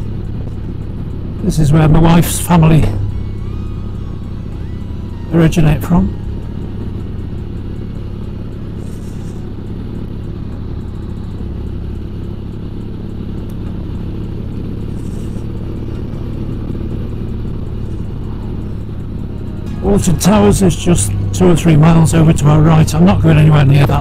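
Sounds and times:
motorcycle engine running: 0:00.0 - 0:24.0
road noise: 0:00.0 - 0:24.0.

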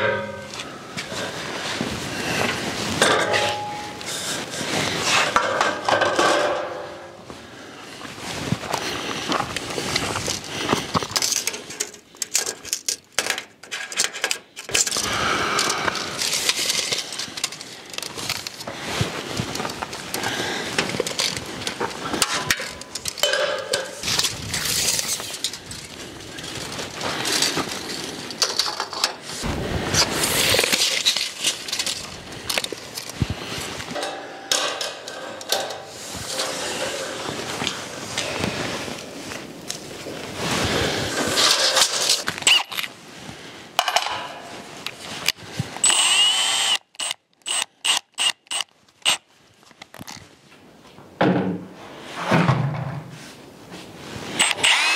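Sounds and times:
wind on microphone: 0:29.4 - 0:30.6
metal clinking and clattering: 0:33.9 - 0:37.0.

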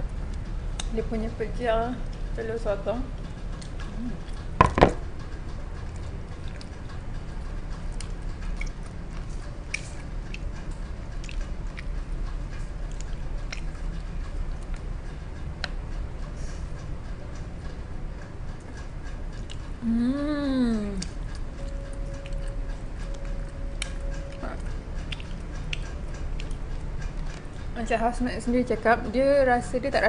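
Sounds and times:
person chewing: 0:03.4 - 0:04.6, 0:05.7 - 0:16.9, 0:18.5 - 0:27.8.

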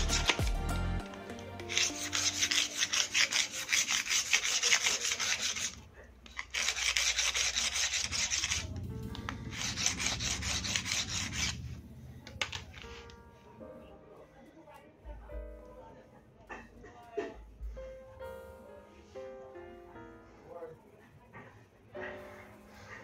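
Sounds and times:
knife sharpened on metal file: 0:00.0 - 0:00.4, 0:01.6 - 0:08.7, 0:09.5 - 0:11.7.

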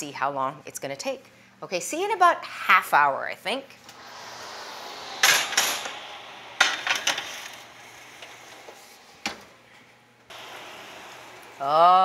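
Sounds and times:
steady rushing noise: 0:03.9 - 0:08.6.

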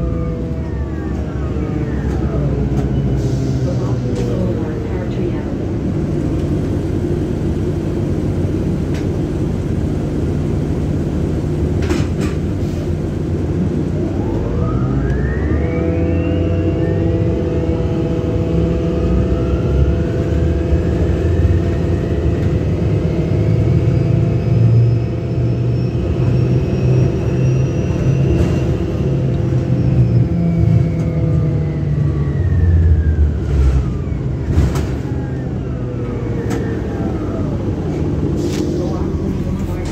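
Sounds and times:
diesel engine droning low: 0:00.0 - 0:39.9.

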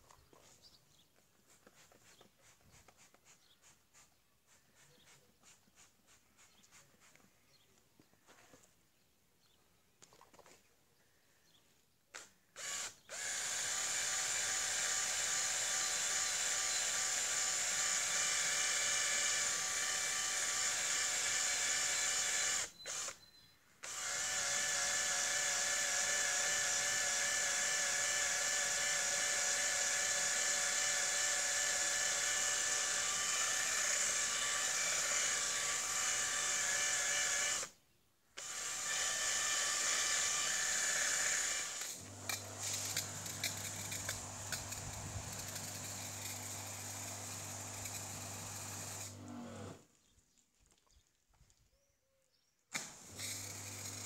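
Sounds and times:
cordless drill whining: 0:12.6 - 0:37.8, 0:38.4 - 0:49.9, 0:52.7 - 0:54.0.

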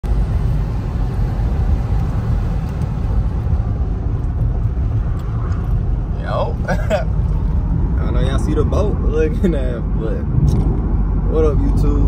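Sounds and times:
car driving rumble: 0:00.0 - 0:12.0.

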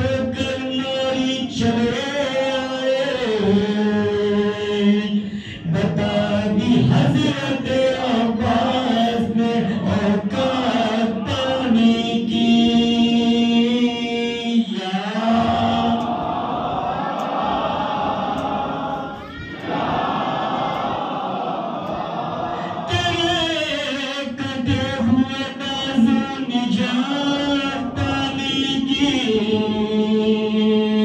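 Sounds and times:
man singing a lament into a microphone: 0:00.0 - 0:16.2, 0:22.6 - 0:31.0.

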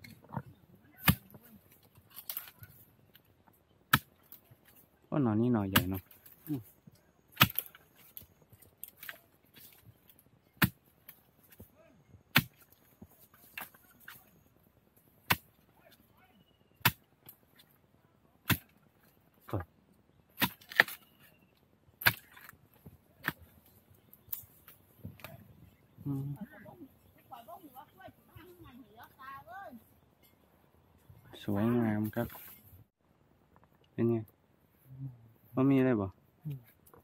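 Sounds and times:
spade chopping into bamboo: 0:01.0 - 0:01.4, 0:03.9 - 0:04.4, 0:05.7 - 0:06.4, 0:07.3 - 0:08.2, 0:10.6 - 0:10.8, 0:12.3 - 0:12.8, 0:15.2 - 0:15.5, 0:16.8 - 0:17.0, 0:18.5 - 0:18.7, 0:20.4 - 0:21.1, 0:22.0 - 0:22.5, 0:23.2 - 0:23.5.

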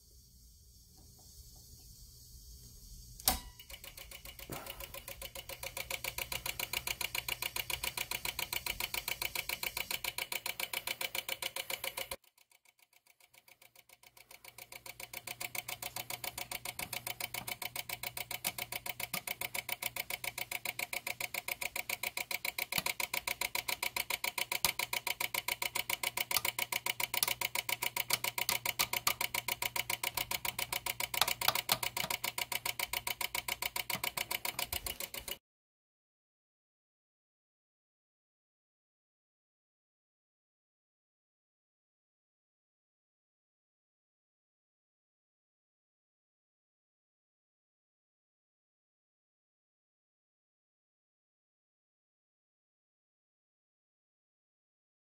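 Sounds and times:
dimmer module clicking rapidly: 0:03.2 - 0:35.4.

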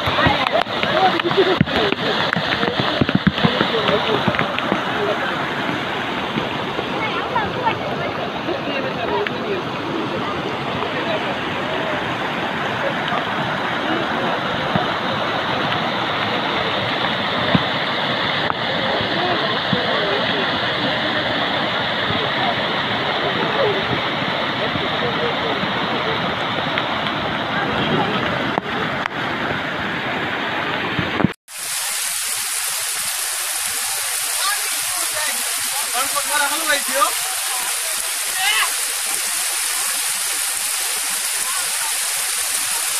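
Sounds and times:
floodwater rushing: 0:00.0 - 0:42.9
heavy rain falling: 0:00.0 - 0:42.9.

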